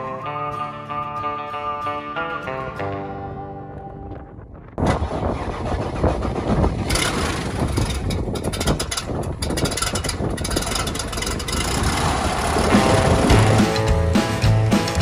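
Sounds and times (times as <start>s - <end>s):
wind buffeting microphone: 2.8s - 13.6s
aircraft engine and propeller: 4.8s - 15.0s.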